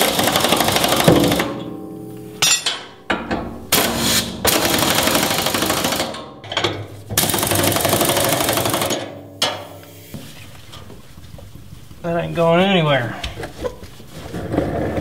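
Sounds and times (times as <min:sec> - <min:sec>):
impact wrench hammering: 0:00.0 - 0:09.8.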